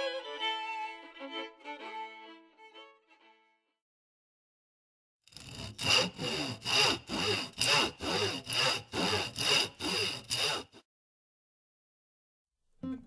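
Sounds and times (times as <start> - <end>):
hand saw cutting wood: 5.3 - 10.9.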